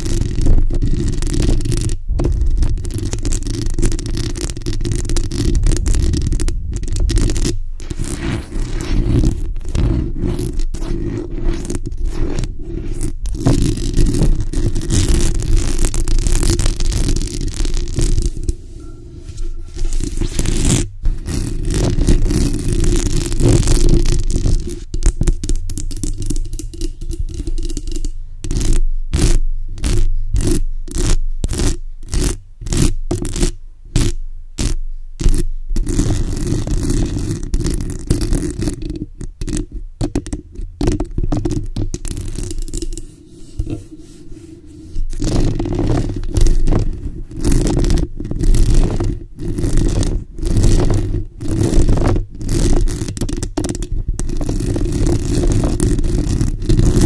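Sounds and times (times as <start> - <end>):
fingernails scratching microphone grille: 0.0 - 57.0.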